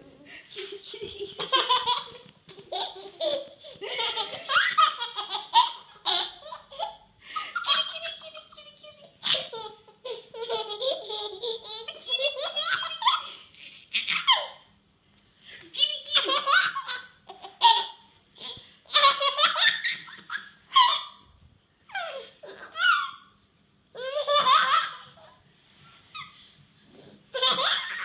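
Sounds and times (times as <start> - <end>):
baby laughing: 0.0 - 14.6, 16.0 - 21.2, 24.0 - 25.3, 27.3 - 28.0.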